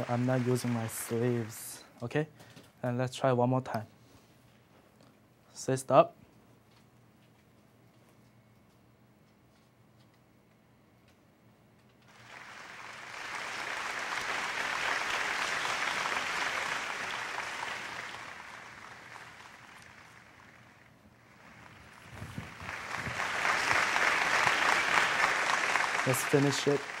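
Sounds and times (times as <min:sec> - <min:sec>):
audience applauding: 0:00.0 - 0:01.8, 0:12.1 - 0:27.0.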